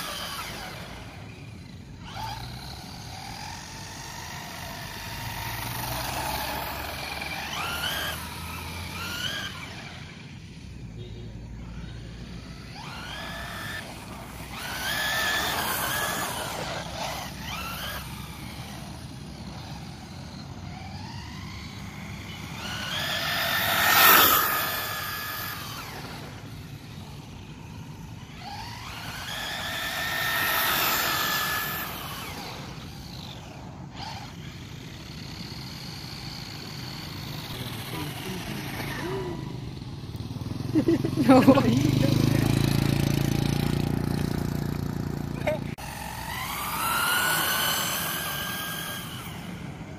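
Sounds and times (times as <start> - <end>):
rc car motor whining past: 0.0 - 49.9.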